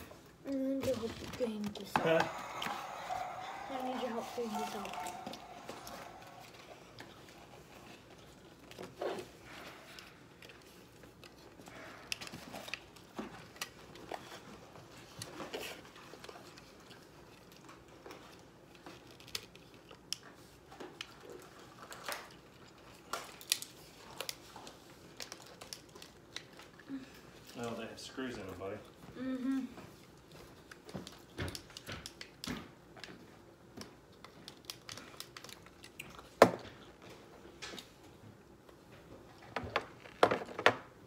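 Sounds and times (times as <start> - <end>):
plastic toys clicking and tapping: 31.0 - 36.6.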